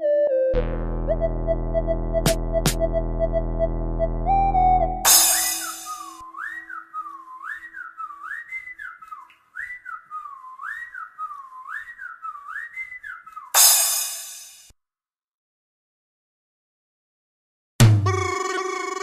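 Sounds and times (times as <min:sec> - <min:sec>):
whistle-like synth lead: 0:00.0 - 0:08.7.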